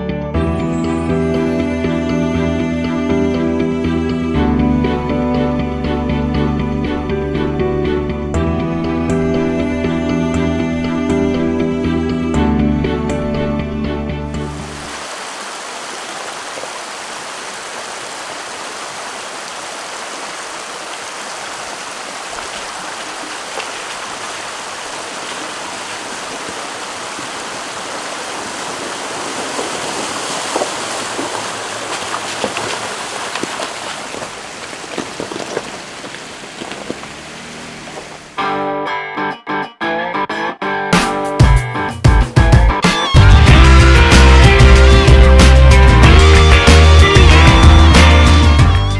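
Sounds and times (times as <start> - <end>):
creek water rushing: 14.4 - 38.4
tyres splashing through water: 14.4 - 38.4.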